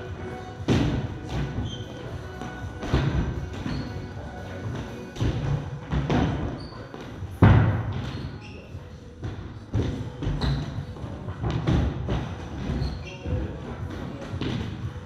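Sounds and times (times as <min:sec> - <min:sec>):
feet landing on wooden boxes: 0:00.6 - 0:01.7
thuds on rubber gym floor: 0:00.6 - 0:01.8, 0:07.3 - 0:08.3.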